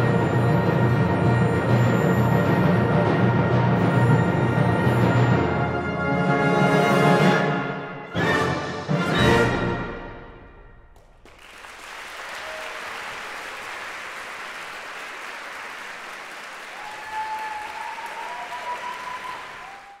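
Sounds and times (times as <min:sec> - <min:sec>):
audience applause: 0:11.0 - 0:20.0
crowd cheering: 0:11.2 - 0:20.0.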